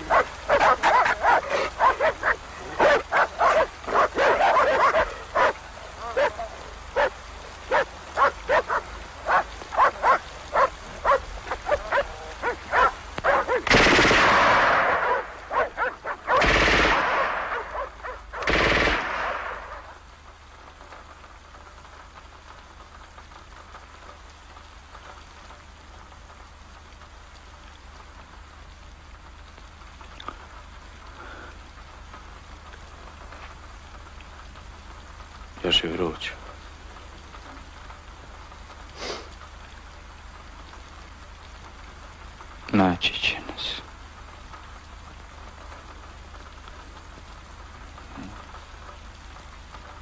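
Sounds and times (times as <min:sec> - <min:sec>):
dogs barking: 0:00.0 - 0:13.7, 0:14.6 - 0:18.6
rain hissing: 0:00.0 - 0:50.0
machine-gun fire: 0:13.7 - 0:15.0, 0:16.4 - 0:17.5, 0:18.4 - 0:19.7.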